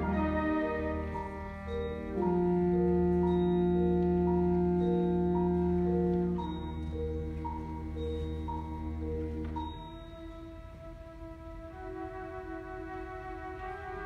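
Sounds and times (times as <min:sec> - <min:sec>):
mallet instrument two-note figure: 0:00.0 - 0:10.3.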